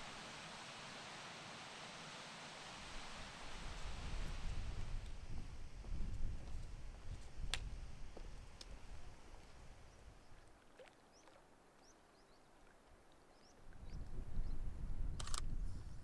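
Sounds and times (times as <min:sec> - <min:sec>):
wind rumble on microphone: 0:03.5 - 0:10.4, 0:13.6 - 0:16.0
sharp clicks: 0:15.2 - 0:15.5.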